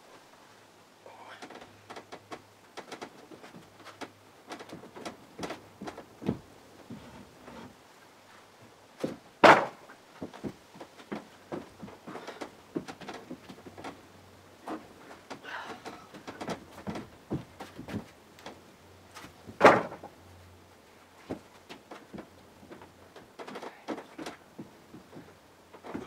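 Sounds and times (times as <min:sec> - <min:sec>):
wooden knocks and clatter: 0:01.4 - 0:07.8, 0:08.7 - 0:20.2, 0:21.2 - 0:26.0
wood thump: 0:09.0 - 0:11.7, 0:19.5 - 0:20.1.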